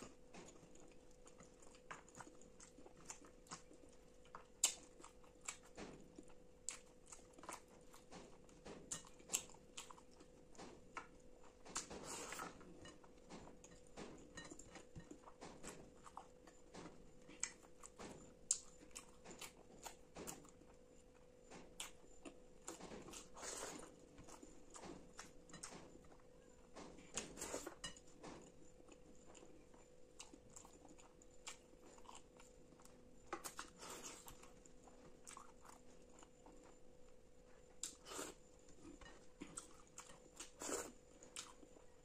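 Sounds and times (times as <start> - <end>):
faint steady hum: 0.0 - 42.0
chewing and lip smacks: 0.5 - 8.1.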